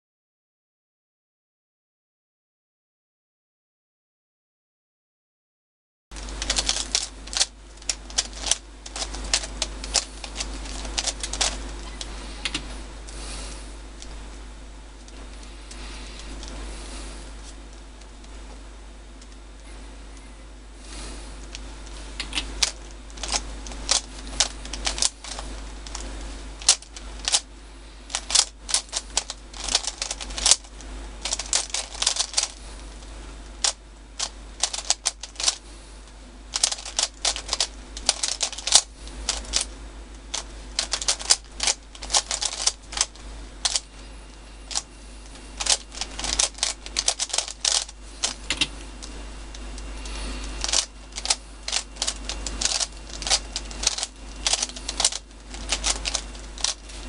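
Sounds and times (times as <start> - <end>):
puzzle cube plastic clicking: 6.2 - 12.6, 22.2 - 27.4, 28.1 - 32.6, 33.6 - 35.6, 36.5 - 39.7, 40.3 - 43.8, 45.6 - 49.8, 50.5 - 56.9.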